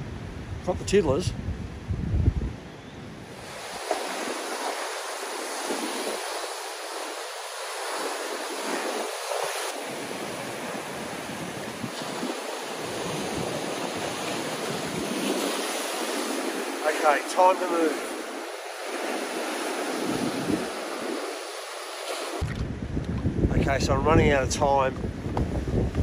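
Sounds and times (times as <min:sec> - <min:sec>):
surf breaking against rocks: 0:03.4 - 0:22.8.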